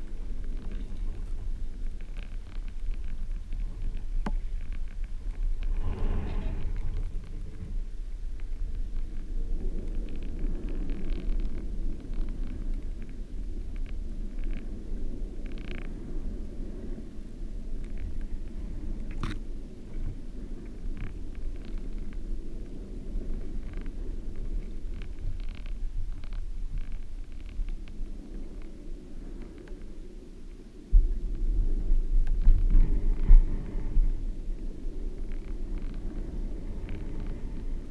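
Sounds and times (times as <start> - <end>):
faint clicks: 0.0 - 16.4, 17.7 - 31.4
muffled underwater water rumble: 0.0 - 37.9.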